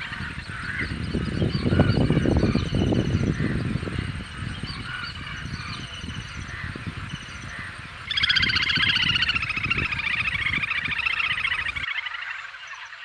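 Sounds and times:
short high bird calls: 4.5s - 12.4s.

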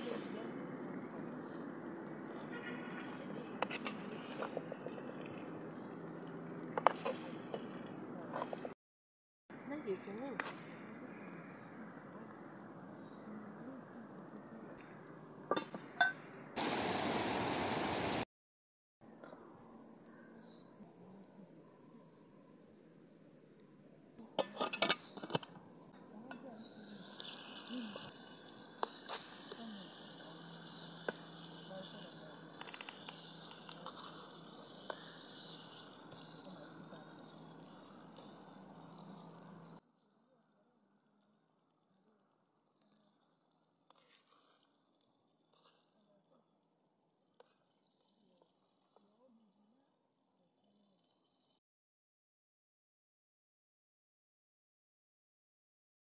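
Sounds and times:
river rushing: 16.6s - 18.2s.

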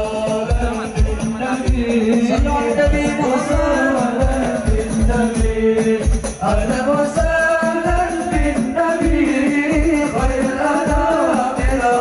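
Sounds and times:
low drum beat: 0.0s - 12.0s
person singing devotional song: 0.0s - 12.0s.

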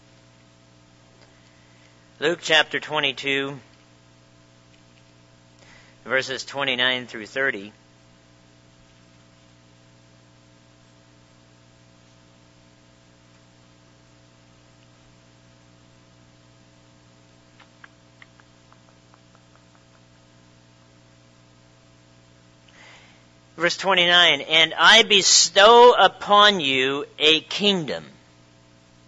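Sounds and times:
electrical mains hum: 0.0s - 29.0s
faint clicks: 17.5s - 20.2s.

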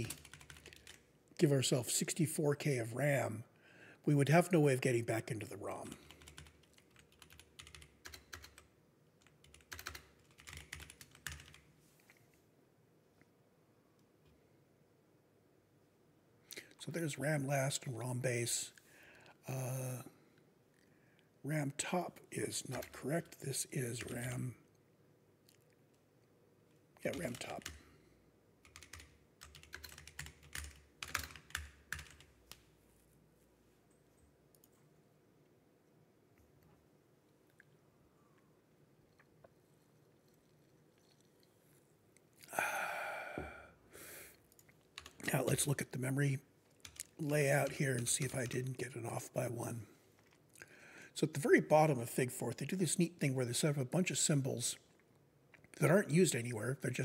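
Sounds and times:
faint computer keyboard typing: 0.0s - 1.1s, 5.8s - 11.7s, 22.6s - 23.4s, 27.0s - 28.0s, 28.6s - 32.7s, 34.1s - 34.9s, 44.4s - 45.7s, 46.7s - 48.9s.

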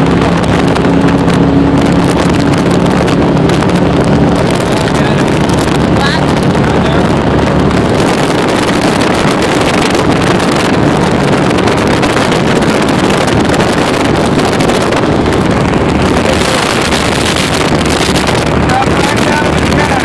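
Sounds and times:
powerboat engine drone: 0.0s - 20.0s
water rushing: 0.0s - 20.0s
wind noise on microphone: 0.0s - 20.0s.

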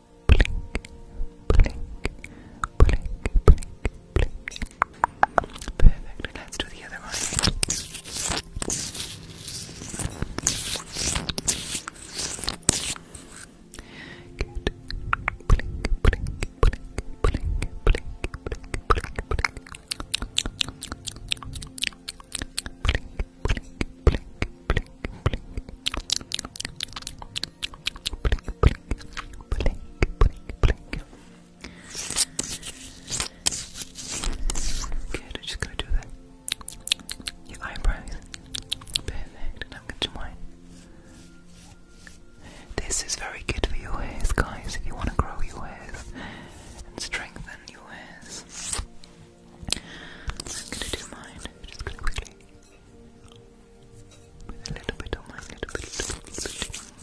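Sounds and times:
fingers scratching a microphone: 6.8s - 13.5s, 31.9s - 35.9s, 48.2s - 48.9s, 54.7s - 57.0s.

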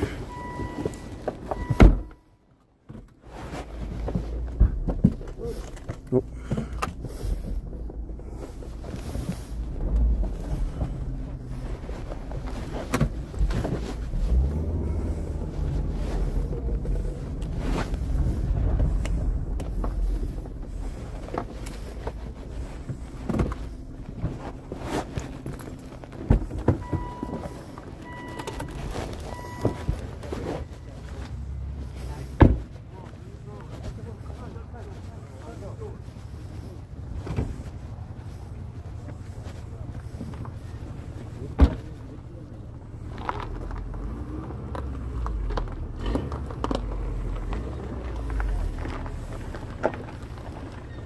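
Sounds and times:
engine and road rumble: 0.0s - 51.0s
car warning chime beeping: 0.2s - 2.5s, 26.8s - 31.5s.

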